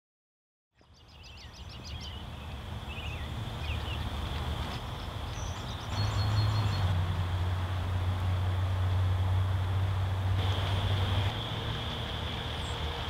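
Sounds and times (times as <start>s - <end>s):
birds chirping: 0.8s - 7.1s, 10.4s - 13.0s
grass fire crackling roar: 2.3s - 13.0s.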